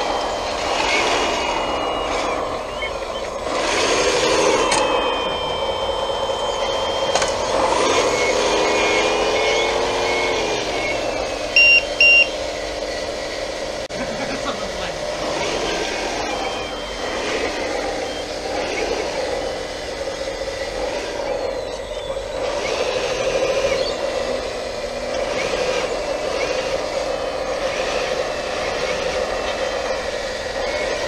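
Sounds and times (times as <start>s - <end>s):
reversing beeps: 0.0s - 12.4s, 15.2s - 19.2s
hydraulic pump and motor whining: 0.0s - 31.0s.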